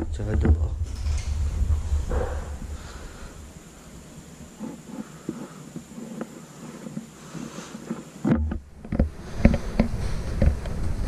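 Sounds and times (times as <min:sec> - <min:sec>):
thumps: 0:00.0 - 0:06.3
microphone brushing rumble: 0:00.0 - 0:07.0.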